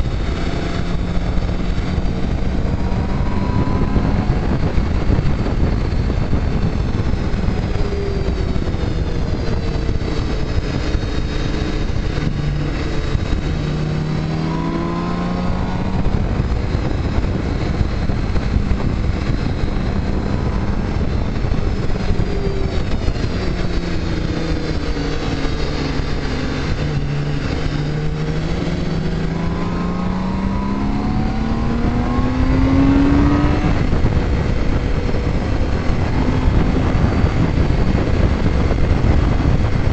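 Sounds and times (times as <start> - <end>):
motorcycle engine revving: 0.0 - 39.9
wind rush: 0.0 - 39.9.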